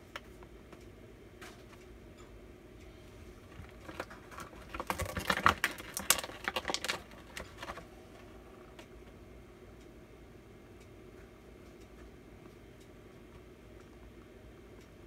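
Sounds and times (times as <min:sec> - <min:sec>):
plastic toys clicking and tapping: 0:03.5 - 0:07.9.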